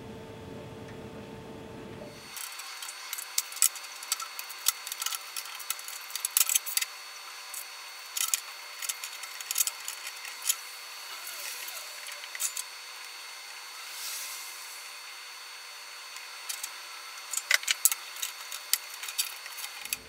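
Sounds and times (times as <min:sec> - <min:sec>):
wire cutters snipping: 0:02.2 - 0:06.9, 0:07.5 - 0:12.7, 0:16.2 - 0:20.0.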